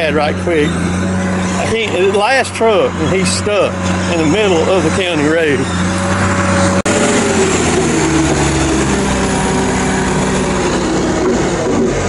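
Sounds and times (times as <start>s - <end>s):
diesel engine drone: 0.0s - 12.0s.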